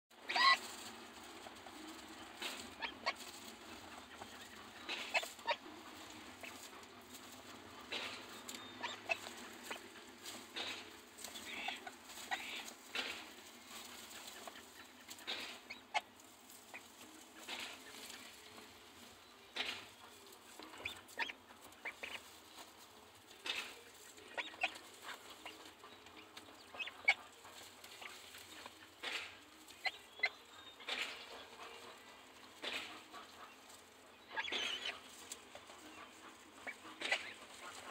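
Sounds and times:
dry straw rustling and crackling: 0.1s - 37.9s
duck calling softly: 0.2s - 0.6s.

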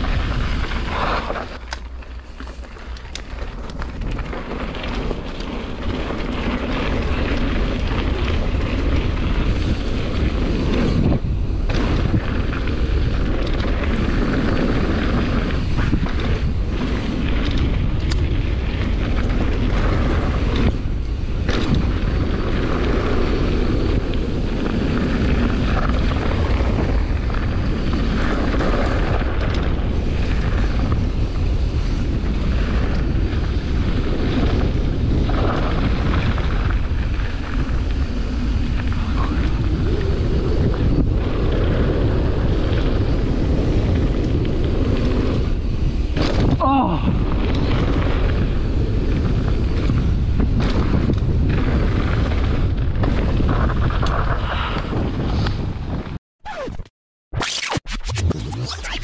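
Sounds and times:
bike rattling over rock: 0.0s - 56.2s
wind rushing over microphone: 0.0s - 56.7s
bike tyres rumbling: 0.0s - 56.9s.

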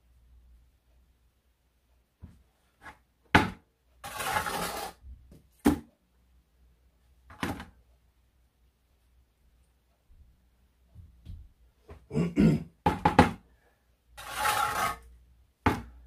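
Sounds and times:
trowel scraping mortar: 4.0s - 5.0s, 14.2s - 15.1s.

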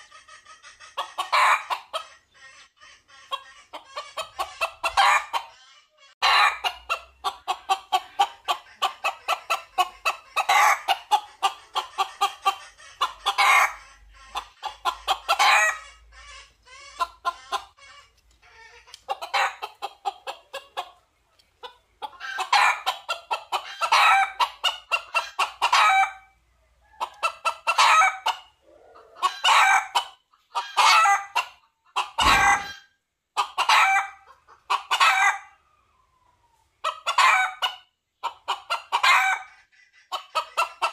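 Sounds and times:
junglefowl clucking: 0.0s - 35.7s, 36.7s - 40.9s
low thump: 32.2s - 32.7s.

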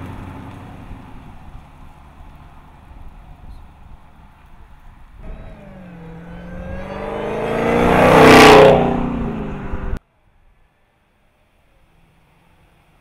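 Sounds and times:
car engine accelerating past: 5.2s - 10.0s.

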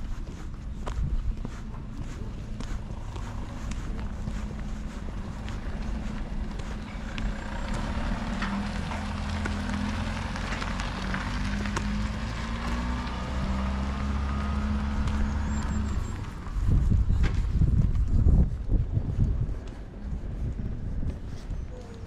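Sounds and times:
engine rumbling: 0.0s - 22.0s.

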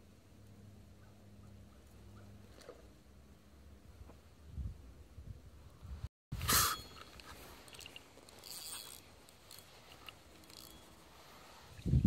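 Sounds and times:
crackling handling noise: 6.4s - 11.7s.

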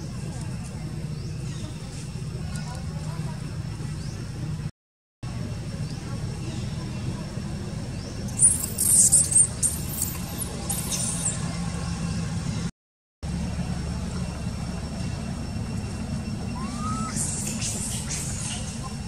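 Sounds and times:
baby monkey squealing: 8.4s - 11.4s, 16.6s - 18.8s.

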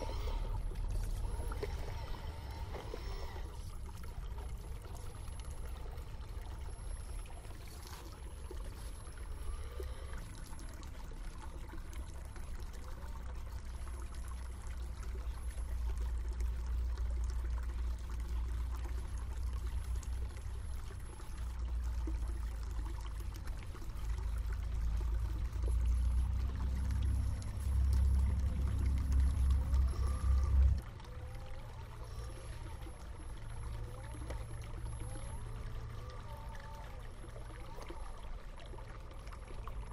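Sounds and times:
water trickling and pouring: 0.0s - 39.9s
low rumble: 24.7s - 37.5s.

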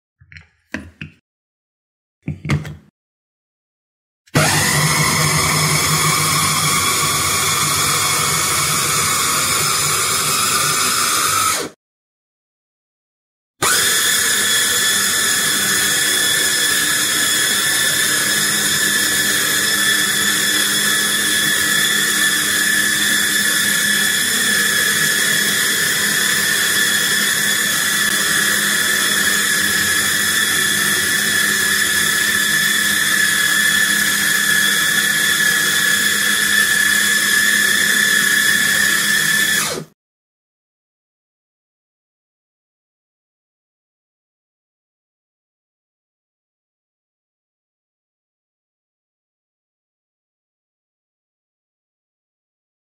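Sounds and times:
food chopper motor whining: 4.3s - 11.8s, 13.6s - 40.0s.

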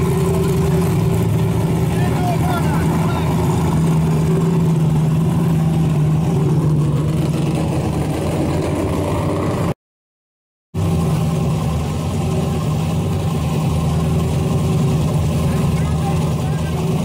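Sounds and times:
car engine idling: 0.0s - 9.7s, 10.8s - 17.0s.

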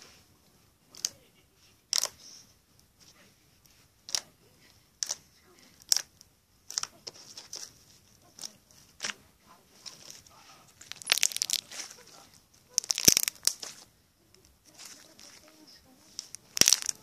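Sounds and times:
slime crackling and popping: 1.9s - 2.2s, 4.0s - 4.3s, 5.0s - 9.2s, 10.8s - 17.0s.

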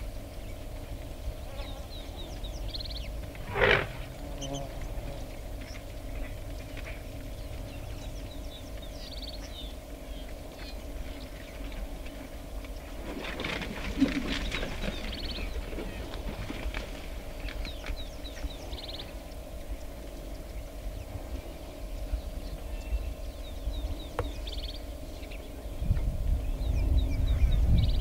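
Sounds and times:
birds chirping: 0.0s - 28.0s
steady low hum: 0.0s - 28.0s
animal snorting: 3.4s - 5.2s.

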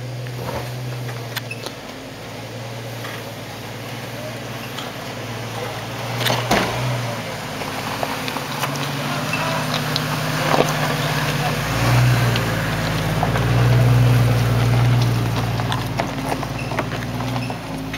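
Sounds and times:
suv engine running: 0.0s - 17.9s
tyres rolling over stones: 0.0s - 17.9s.

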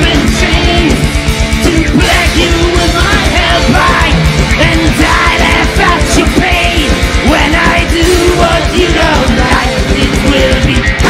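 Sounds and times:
heavy metal band playing: 0.0s - 11.0s
rapid kick drum beat: 0.0s - 11.0s.

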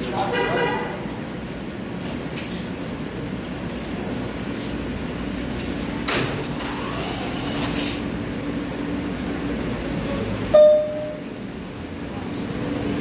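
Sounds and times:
brief loud tone: 10.5s - 11.4s.

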